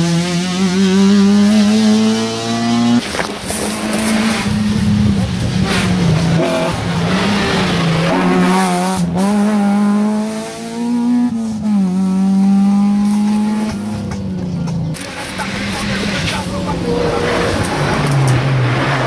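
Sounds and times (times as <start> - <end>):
rally car accelerating hard: 0.0 - 14.2, 14.8 - 19.0.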